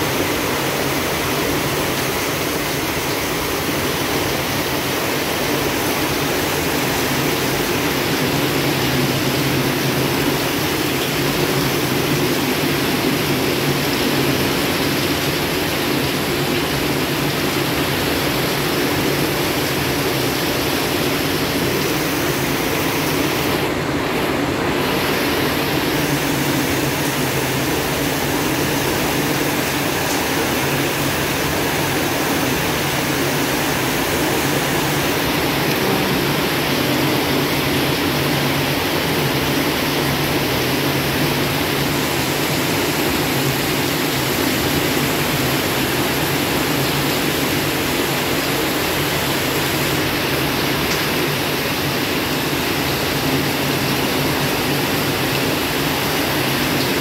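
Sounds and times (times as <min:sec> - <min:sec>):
heavy rain pouring: 0:00.0 - 0:57.0.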